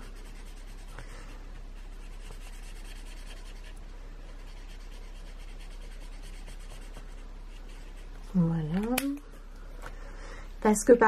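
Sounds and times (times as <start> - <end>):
marker rubbing on paper: 0.0 - 8.2
steady low hum: 0.0 - 11.0.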